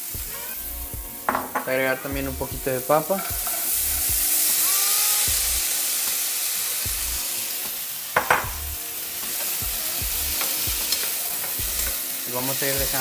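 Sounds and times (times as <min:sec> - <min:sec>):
food frying in oil: 0:00.0 - 0:13.0
sharp knocks: 0:08.2 - 0:08.6.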